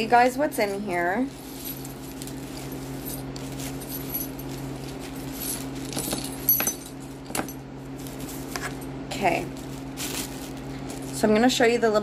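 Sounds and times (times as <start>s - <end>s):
charms and bones clinking: 0.6s - 8.9s.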